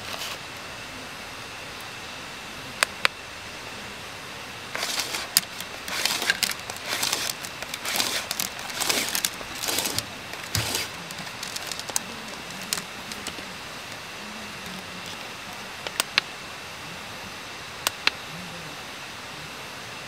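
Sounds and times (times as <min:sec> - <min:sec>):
packaging rustling and crinkling: 0:00.0 - 0:00.4, 0:04.7 - 0:16.2.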